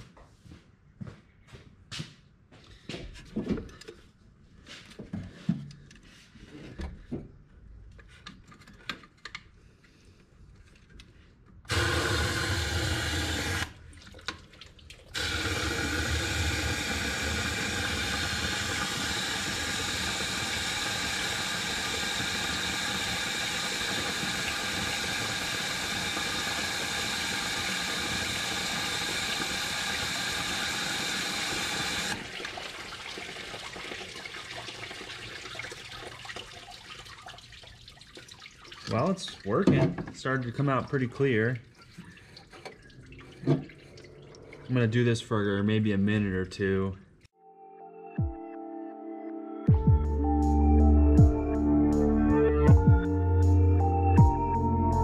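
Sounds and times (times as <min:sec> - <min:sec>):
hose water rushing and pouring: 0:11.7 - 0:45.1.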